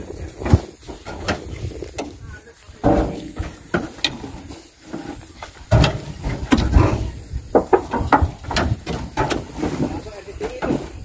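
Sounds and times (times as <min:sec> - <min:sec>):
heavy thuds in steel truck body: 0:02.8 - 0:11.0.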